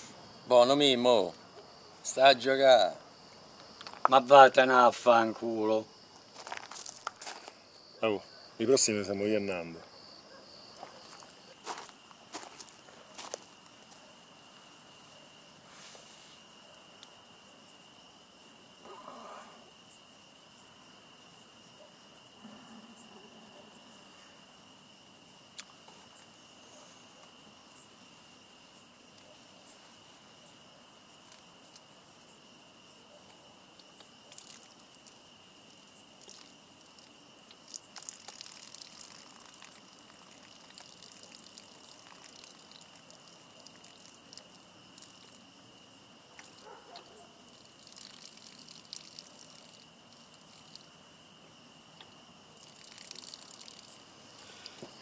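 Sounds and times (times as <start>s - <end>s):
crickets chirping: 0.0s - 55.0s
faint ticks and rustles: 33.2s - 55.0s.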